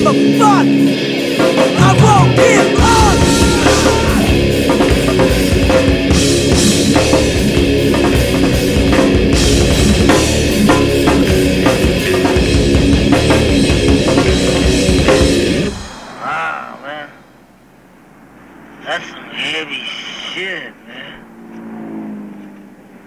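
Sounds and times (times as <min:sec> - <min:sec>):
instrumental heavy rock music: 0:00.0 - 0:16.2
drum kit beat: 0:00.0 - 0:16.3.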